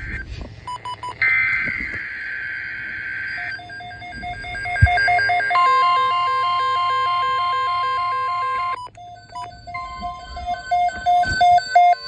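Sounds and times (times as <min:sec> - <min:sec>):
steady high-pitched alarm tone: 0:00.0 - 0:12.0
two-note alternating beep: 0:03.3 - 0:12.0.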